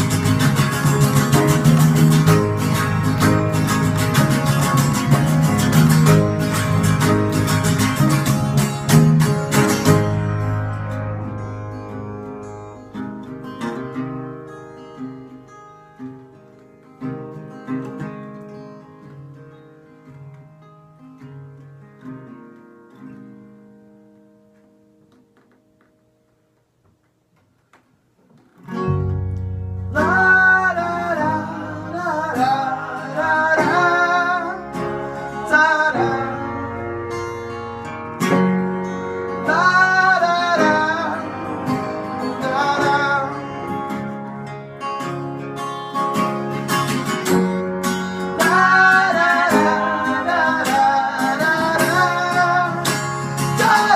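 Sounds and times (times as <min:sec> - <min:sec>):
band strumming guitars: 0:00.0 - 0:19.4, 0:28.3 - 0:53.9
soft plucked guitar notes: 0:00.0 - 0:26.4, 0:28.3 - 0:53.9
person singing: 0:29.9 - 0:37.3, 0:39.3 - 0:44.5, 0:48.2 - 0:53.9.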